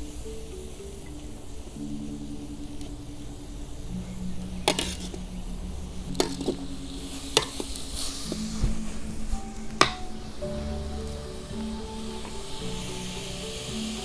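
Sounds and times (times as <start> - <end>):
food sizzling in a wok: 6.1 - 14.0.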